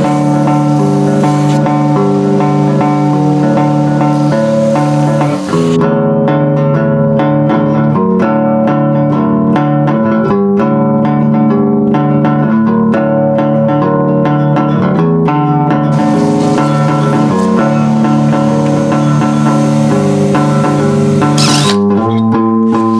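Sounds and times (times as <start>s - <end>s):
steady hiss: 0.0s - 5.8s, 15.9s - 21.8s
plucked bass guitar notes: 0.0s - 22.9s.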